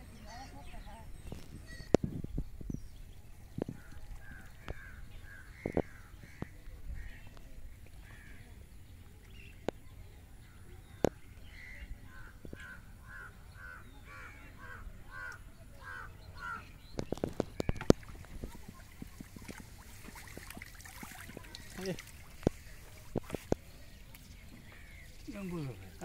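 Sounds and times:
crows cawing: 12.1s - 16.7s.

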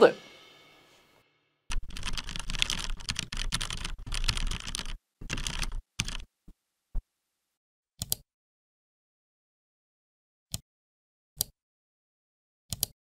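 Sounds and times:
fast typing on keyboard: 1.7s - 6.3s.

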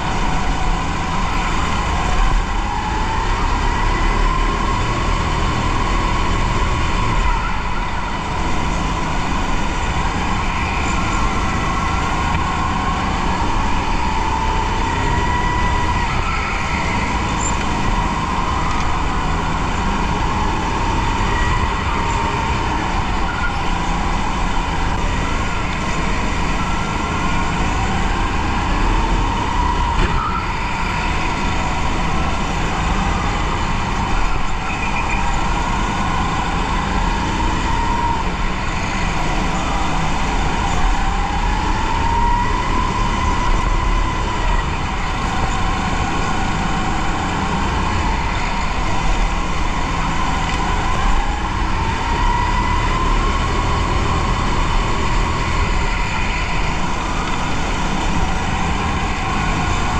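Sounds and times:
kart drive whine: 0.0s - 59.9s.

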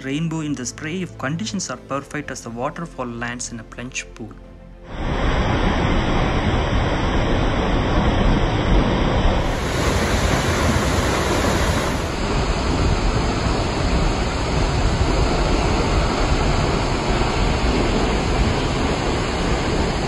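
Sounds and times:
waterfall rushing: 4.9s - 20.0s.

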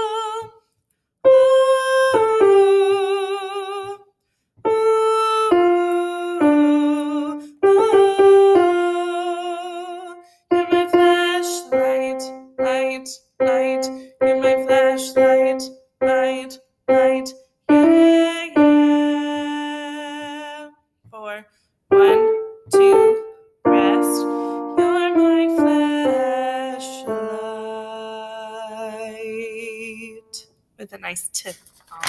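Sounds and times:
woman singing wordlessly: 0.0s - 30.5s
piano single notes: 21.9s - 28.0s.

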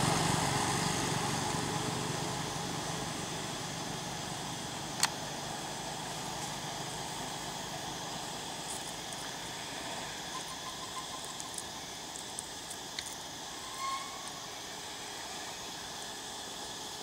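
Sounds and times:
background hiss: 0.0s - 17.0s
insect chorus: 0.0s - 17.0s
short whistle-like note: 13.6s - 14.3s.

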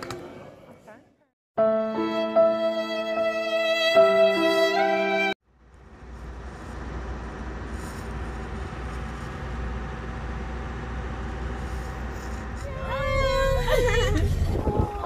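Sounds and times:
vehicle road noise from inside: 5.7s - 15.0s.

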